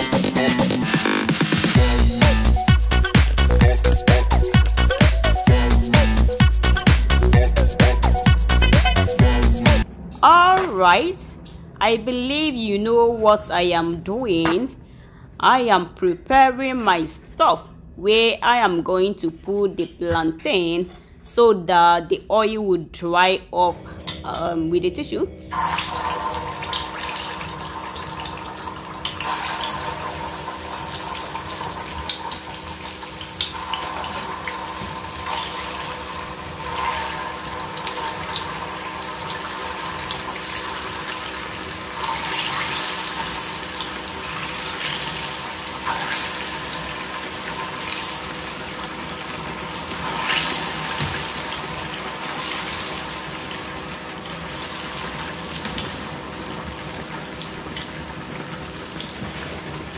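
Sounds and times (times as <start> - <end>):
plantain deep-frying in oil: 25.5 - 59.9.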